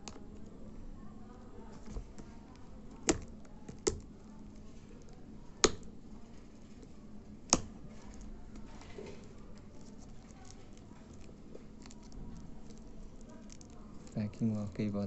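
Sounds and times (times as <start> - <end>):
fingernail clicking on shrink-wrap: 9.5 - 14.2.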